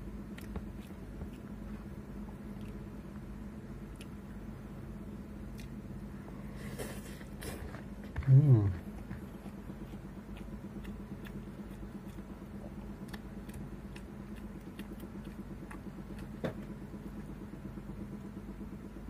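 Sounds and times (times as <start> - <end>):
steady low hum: 0.0 - 19.0
chewing and mouth clicks: 0.3 - 3.2, 3.9 - 4.3, 5.5 - 5.8, 7.3 - 17.3.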